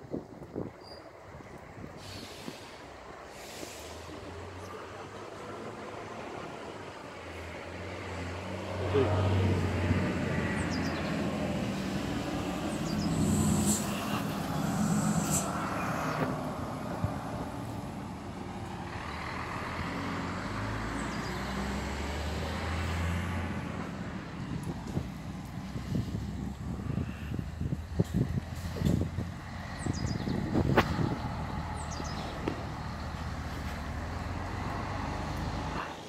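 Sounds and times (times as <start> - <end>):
bus engine running: 0.0 - 36.0
brief high hisses: 2.0 - 4.2, 13.1 - 16.2.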